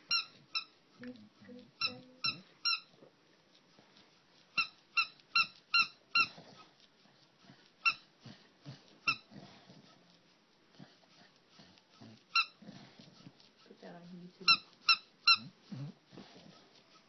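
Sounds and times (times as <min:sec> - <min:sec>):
squeaky toy squeaking: 0:00.0 - 0:00.8, 0:01.8 - 0:03.0, 0:04.5 - 0:06.6, 0:07.8 - 0:08.1, 0:09.0 - 0:09.3, 0:12.4 - 0:12.6, 0:14.4 - 0:15.6
dog chewing: 0:00.0 - 0:17.0.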